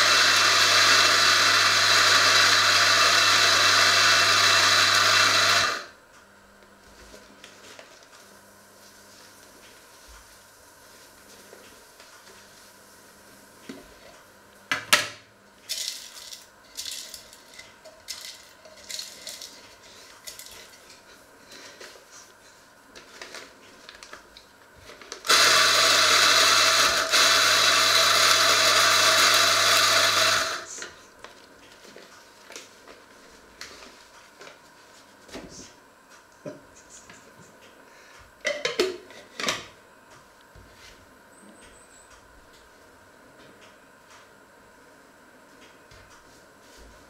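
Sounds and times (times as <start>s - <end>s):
coffee grinder motor humming: 0.0s - 6.0s, 24.9s - 30.9s.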